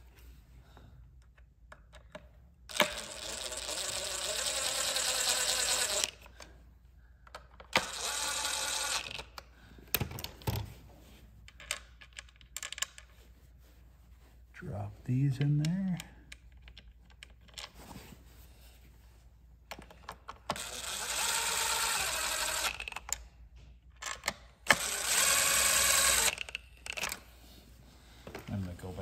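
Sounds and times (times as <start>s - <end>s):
cordless screwdriver running: 2.7s - 6.3s, 7.7s - 9.3s, 20.5s - 23.0s, 24.7s - 27.2s.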